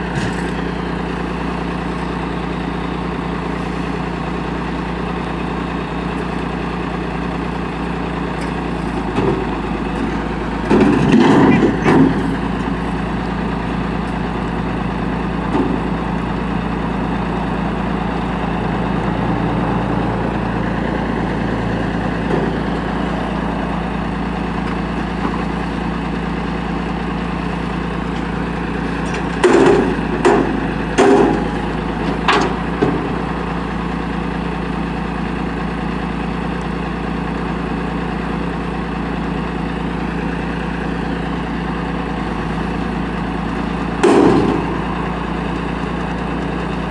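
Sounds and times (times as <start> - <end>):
garbage truck diesel engine running: 0.0 - 46.9
loud bangs of dumpster emptying: 10.6 - 12.6, 29.2 - 33.5, 44.0 - 45.4.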